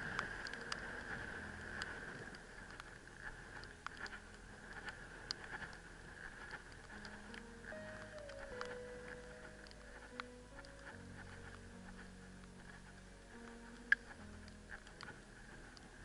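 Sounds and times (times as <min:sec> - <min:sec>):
steady hiss: 0:00.0 - 0:16.0
trekking pole clicks: 0:00.1 - 0:08.8.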